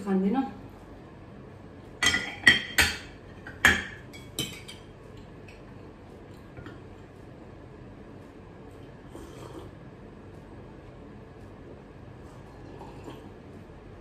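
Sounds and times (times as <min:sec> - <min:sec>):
dishes clinking: 0:02.0 - 0:04.9.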